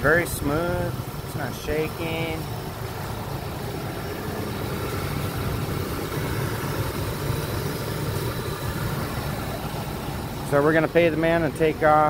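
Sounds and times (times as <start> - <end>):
van engine idling: 0.0 - 12.0.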